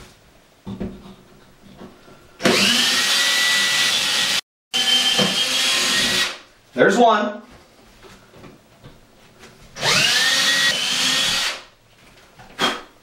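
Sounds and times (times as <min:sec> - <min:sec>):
cordless drill whining: 0:02.4 - 0:06.4, 0:09.8 - 0:11.6.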